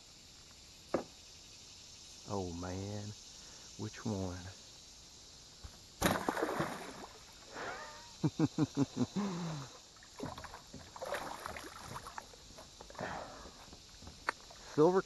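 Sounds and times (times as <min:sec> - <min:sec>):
fish splashing in shallow water: 0:06.0 - 0:07.6, 0:09.9 - 0:13.6.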